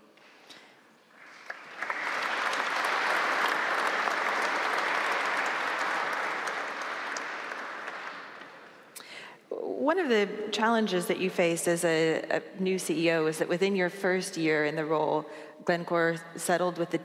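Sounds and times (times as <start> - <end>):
audience applause: 1.2 - 8.9.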